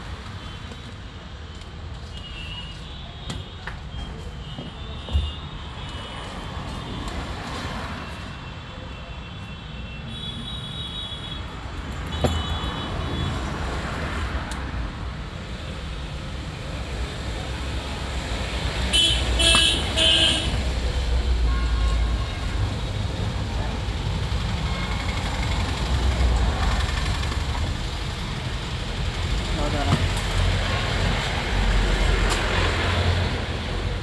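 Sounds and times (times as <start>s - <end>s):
road traffic rumble: 0.0s - 34.0s
car horns honking: 18.9s - 20.6s.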